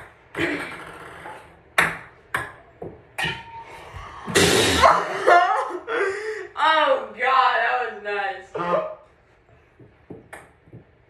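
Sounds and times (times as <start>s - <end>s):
ping pong ball bouncing: 0.0s - 3.6s, 9.8s - 11.0s.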